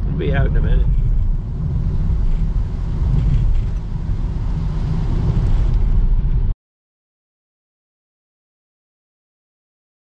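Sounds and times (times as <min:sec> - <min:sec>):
van road noise rumble: 0:00.0 - 0:06.6.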